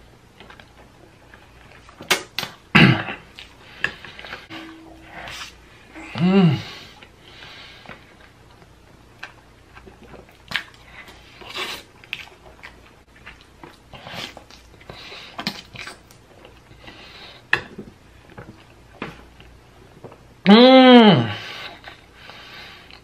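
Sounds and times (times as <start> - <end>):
wet chewing and slurping: 7.9 - 17.5.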